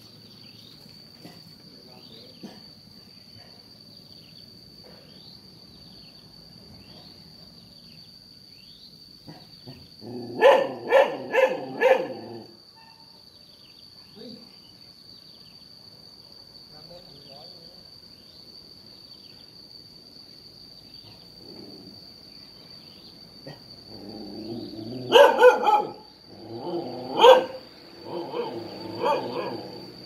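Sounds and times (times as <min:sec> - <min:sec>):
high-pitched insect trill: 0:00.0 - 0:30.0
dog barking: 0:10.3 - 0:12.5, 0:24.9 - 0:29.8.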